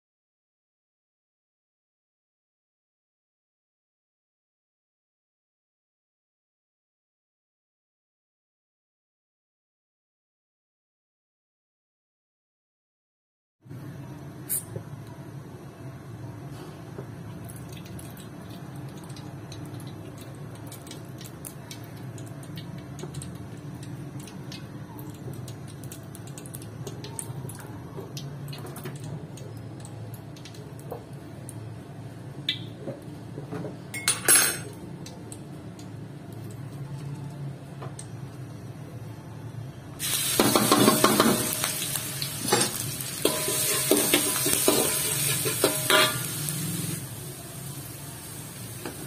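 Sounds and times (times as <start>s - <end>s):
oil warming in a wok: 13.8s - 49.0s
metal spoon clattering on pan: 40.4s - 41.6s, 42.5s - 46.3s.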